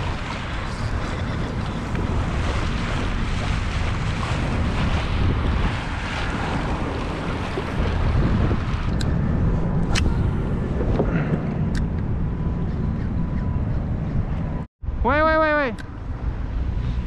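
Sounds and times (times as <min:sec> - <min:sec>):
water sloshing along hull: 0:00.0 - 0:11.7
wind buffeting microphone: 0:00.0 - 0:15.0.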